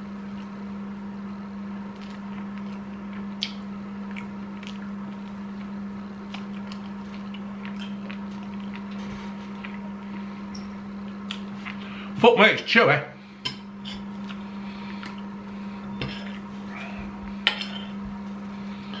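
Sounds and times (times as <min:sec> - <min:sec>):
steady low hum: 0:00.0 - 0:19.0
man chewing wet mouth clicks: 0:02.0 - 0:11.9.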